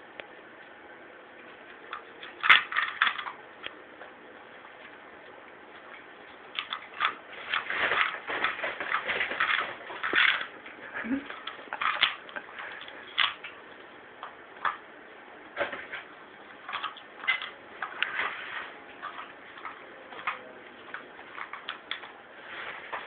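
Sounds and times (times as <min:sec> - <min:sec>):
dog crunching a poppadom: 0:01.6 - 0:03.8, 0:05.6 - 0:14.8, 0:15.6 - 0:23.0.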